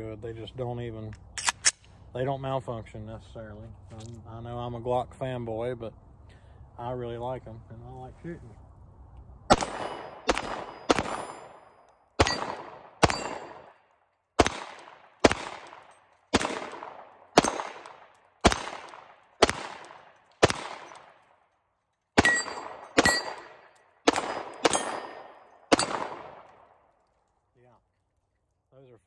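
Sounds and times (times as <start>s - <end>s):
pistol shots: 9.5s - 21.2s, 22.2s - 26.8s
steel targets ringing: 12.2s - 13.8s, 22.2s - 26.0s.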